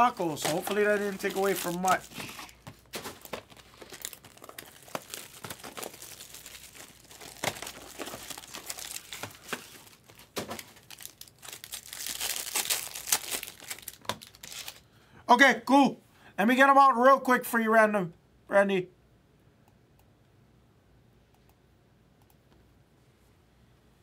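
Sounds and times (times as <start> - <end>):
cellophane and foil wrapper crinkling: 0.0 - 14.9.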